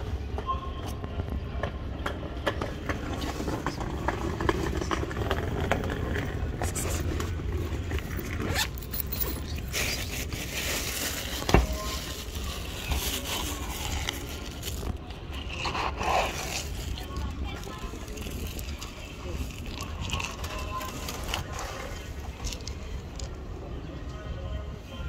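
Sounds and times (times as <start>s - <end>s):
zip being pulled: 8.2s - 9.2s.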